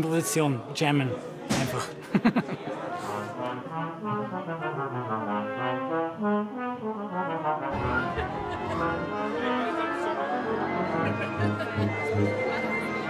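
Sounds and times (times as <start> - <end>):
orchestral brass music: 3.1 - 13.0.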